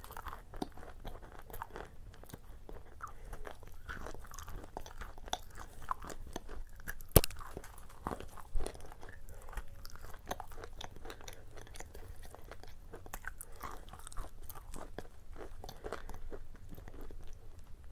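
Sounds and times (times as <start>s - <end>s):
crunchy cookie chewing: 0.0s - 17.9s
sharp crack: 7.1s - 7.6s.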